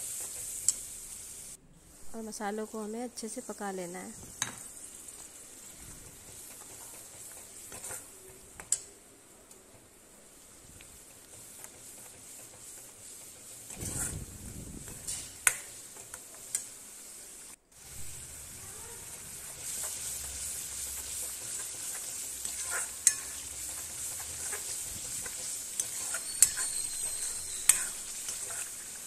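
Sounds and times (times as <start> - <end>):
paste sizzling in oil: 0.0 - 9.0, 10.0 - 29.0
metal spatula clinking on pan: 22.4 - 23.4, 25.8 - 28.7.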